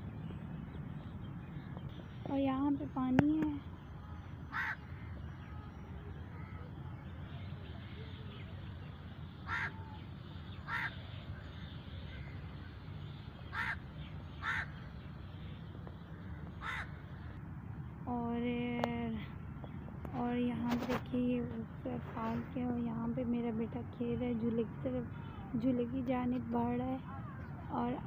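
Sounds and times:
low background noise: 0.0s - 28.0s
crow cawing: 4.5s - 5.2s, 9.4s - 10.0s, 10.6s - 11.0s, 13.5s - 13.8s, 14.4s - 14.8s, 16.4s - 17.0s.

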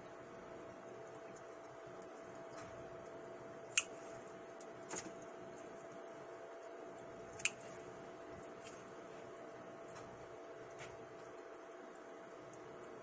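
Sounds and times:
scissors snipping stems: 3.7s - 4.0s, 7.3s - 7.8s.

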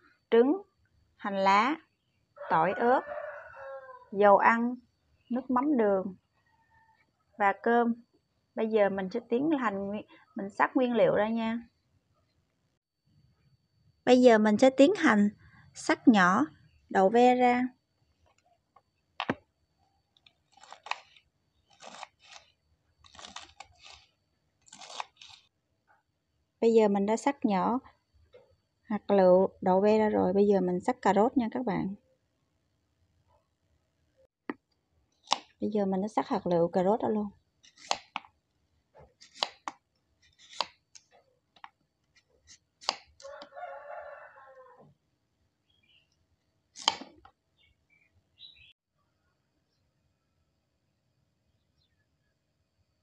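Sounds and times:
rooster crowing: 2.4s - 4.2s, 6.4s - 7.1s, 43.2s - 44.9s
knife slicing green beans on board: 35.3s - 35.6s, 37.7s - 38.3s, 39.2s - 40.9s, 42.4s - 43.2s, 46.8s - 47.3s.

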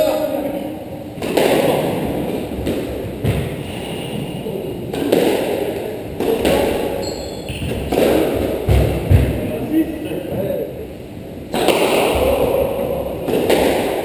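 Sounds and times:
squash ball thuds: 1.1s - 3.6s, 4.9s - 9.5s.

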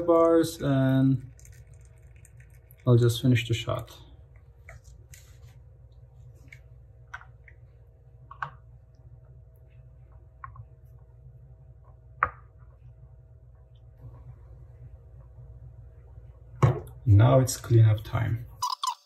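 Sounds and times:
steady low hum: 0.0s - 18.6s.

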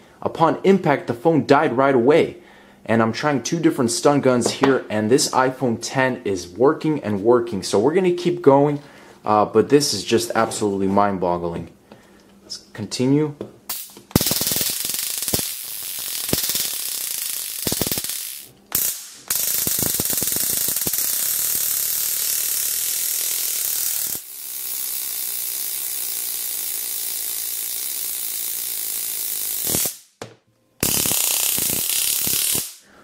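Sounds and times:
stun gun arc crackling: 13.7s - 30.2s, 30.8s - 32.8s.

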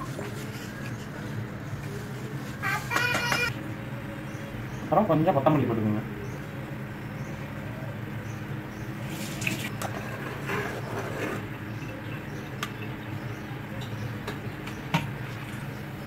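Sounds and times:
spatula scraping a pot: 9.9s - 11.4s.

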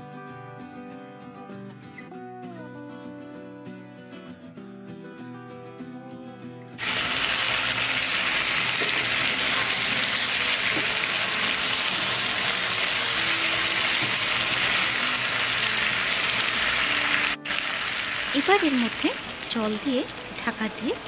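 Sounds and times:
chicken sizzling in a pan: 6.8s - 21.0s.

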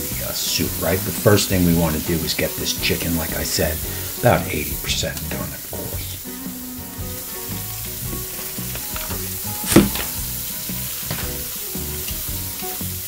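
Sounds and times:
chicken sizzling: 0.0s - 13.0s
sharp knock: 9.7s - 10.2s.

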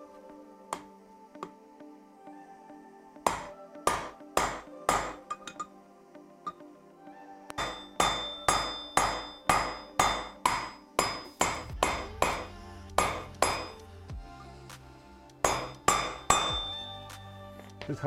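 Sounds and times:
hammer striking metal: 3.3s - 5.6s, 7.5s - 13.8s, 15.4s - 16.9s.

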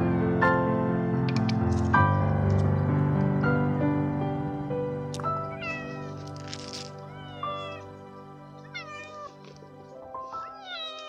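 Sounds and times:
background music: 0.0s - 11.0s
kitten meowing: 5.5s - 6.1s, 7.1s - 8.0s, 8.6s - 9.4s, 10.3s - 11.0s.

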